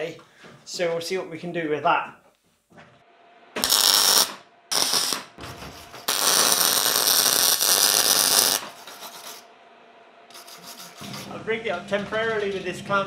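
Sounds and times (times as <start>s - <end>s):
welder arc welding: 3.6s - 9.4s, 10.3s - 11.3s.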